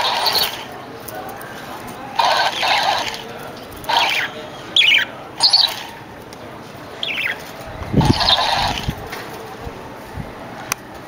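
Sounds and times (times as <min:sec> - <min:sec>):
budgerigars squawking and chirping: 0:03.9 - 0:05.9, 0:07.0 - 0:07.4, 0:08.0 - 0:08.9.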